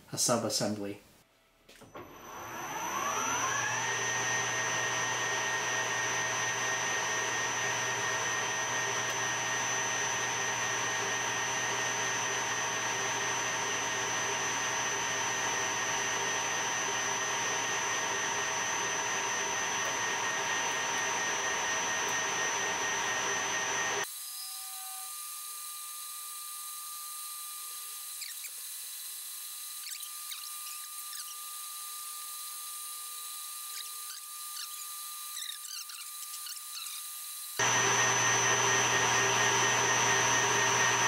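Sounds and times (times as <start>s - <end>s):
lathe motor high whine: 1.9s - 25.1s, 26.4s - 41.0s.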